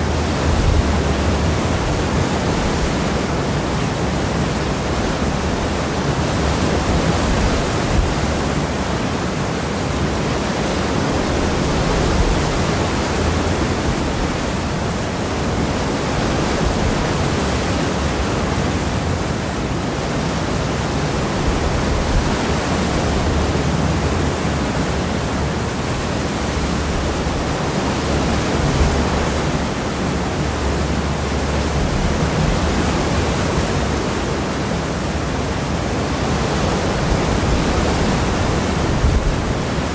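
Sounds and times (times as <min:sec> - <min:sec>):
water rushing behind ferry: 0:00.0 - 0:39.9.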